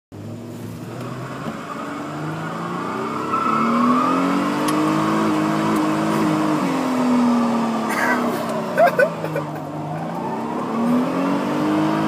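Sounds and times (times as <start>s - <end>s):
van engine revving: 0.2s - 12.0s.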